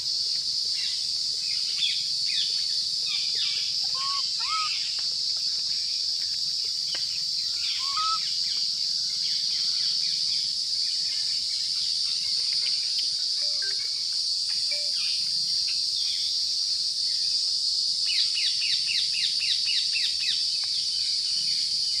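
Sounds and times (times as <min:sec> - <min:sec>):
insect chorus drone: 0:00.0 - 0:22.0
bird chirps: 0:03.1 - 0:05.0, 0:07.4 - 0:08.4, 0:13.4 - 0:15.3.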